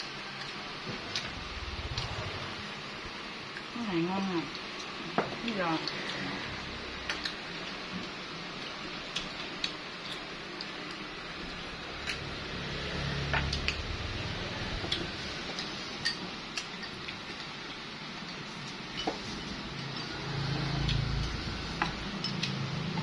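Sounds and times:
steady background noise: 0:00.0 - 0:23.0
low rumble: 0:00.9 - 0:04.0.

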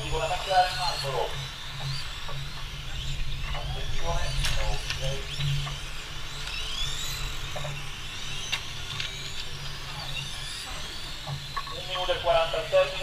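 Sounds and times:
electric motors whining: 0:00.0 - 0:13.0.

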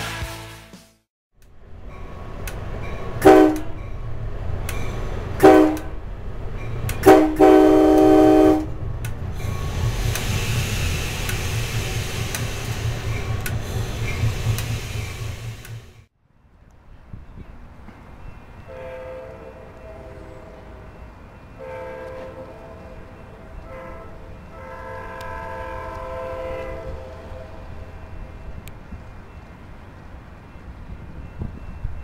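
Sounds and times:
moving train rumble: 0:01.4 - 0:32.0
train air horn blasts: 0:03.2 - 0:03.8, 0:05.4 - 0:05.9, 0:07.0 - 0:08.7, 0:18.7 - 0:20.9, 0:21.6 - 0:27.7.

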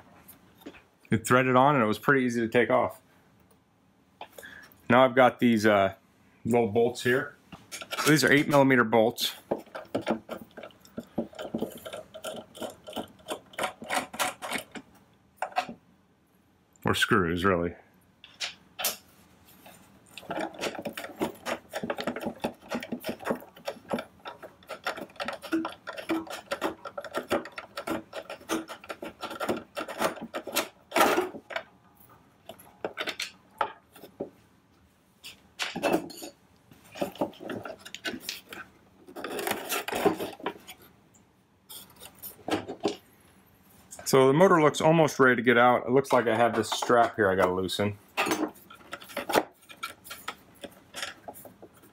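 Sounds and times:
screwdriver clicking and scraping: 0:09.5 - 0:15.8, 0:20.1 - 0:31.7, 0:32.5 - 0:34.2, 0:36.9 - 0:40.8, 0:48.6 - 0:51.9.

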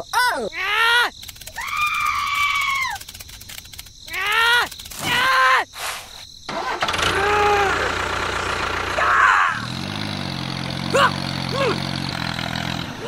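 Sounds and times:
tractor engine idling: 0:06.5 - 0:13.0
drawn-out voice-like call: 0:10.9 - 0:11.9.

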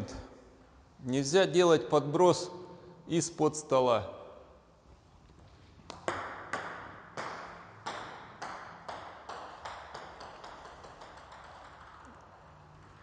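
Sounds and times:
table tennis ball bouncing: 0:05.8 - 0:13.0.

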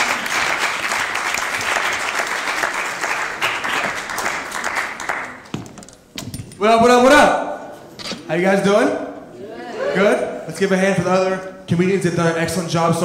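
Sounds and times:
audience applauding: 0:00.0 - 0:05.5.

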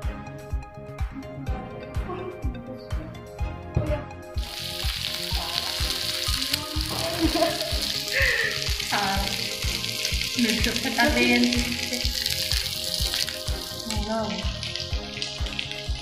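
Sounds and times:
background music with a beat: 0:00.0 - 0:16.0
meat sizzling in a frying pan: 0:04.4 - 0:16.0.

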